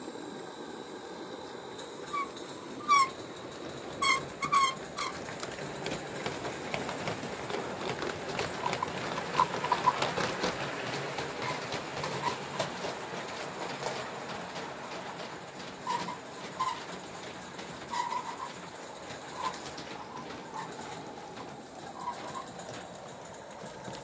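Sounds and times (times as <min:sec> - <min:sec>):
model steam locomotive hissing: 0:00.0 - 0:24.0
wheels clicking on track: 0:01.2 - 0:24.0.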